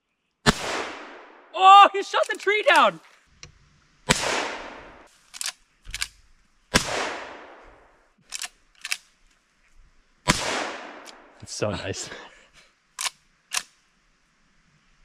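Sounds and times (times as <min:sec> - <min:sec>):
rifle shots echoing: 0:00.5 - 0:01.5, 0:04.1 - 0:05.1, 0:06.7 - 0:07.9, 0:10.3 - 0:11.4
rifle lever clicks: 0:05.3 - 0:06.2, 0:08.3 - 0:09.0, 0:13.0 - 0:13.7.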